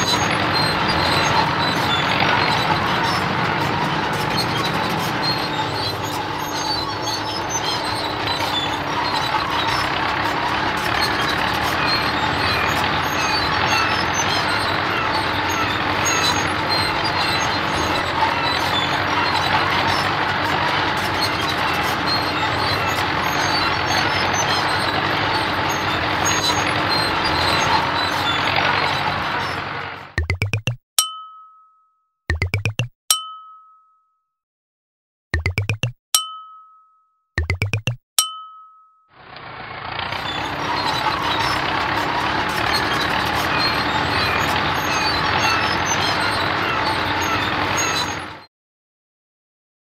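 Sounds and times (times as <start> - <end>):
road roller engine running: 0.0 - 30.2, 39.2 - 48.5.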